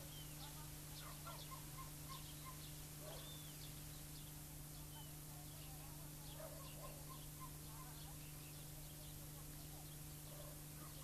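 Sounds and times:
bird chirps: 0.0 - 5.7
low hum and hiss: 0.0 - 11.0.

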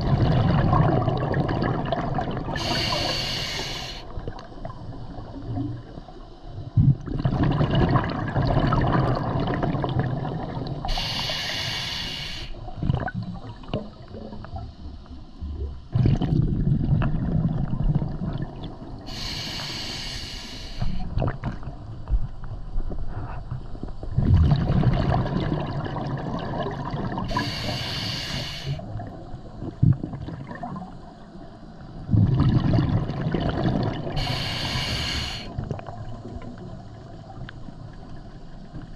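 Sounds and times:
rush of exhaled bubbles: 0.0 - 5.9, 6.8 - 11.6, 12.6 - 14.2, 15.9 - 19.4, 24.1 - 28.0, 28.6 - 31.0, 32.1 - 36.5
regulator hissing inhales: 2.6 - 4.1, 10.9 - 12.6, 19.1 - 21.1, 27.3 - 28.8, 34.2 - 35.6.

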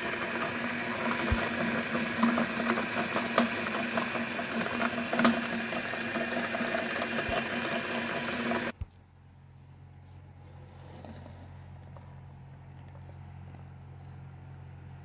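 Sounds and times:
meat grinder motor humming: 0.0 - 8.8.

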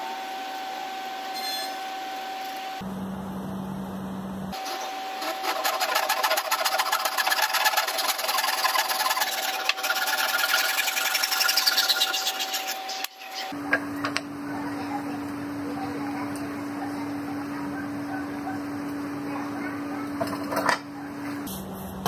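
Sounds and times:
handsaw cutting wood: 4.6 - 13.1.

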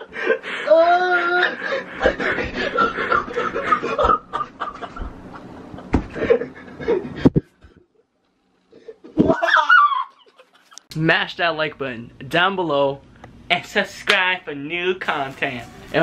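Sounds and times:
people laughing and giggling: 1.4 - 7.9.

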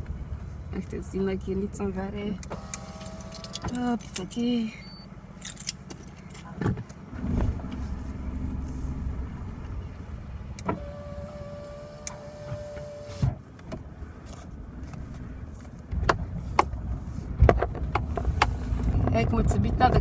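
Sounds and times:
engine and road rumble: 0.0 - 20.0
motor whine: 2.5 - 3.7, 8.0 - 13.2.

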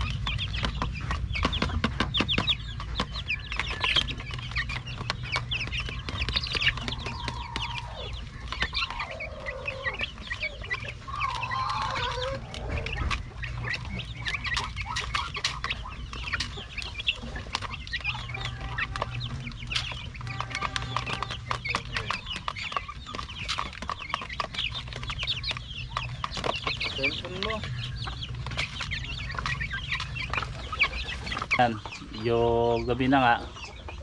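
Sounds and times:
beaks tapping on feeder: 0.0 - 34.0
chicks chirping: 0.0 - 34.0.

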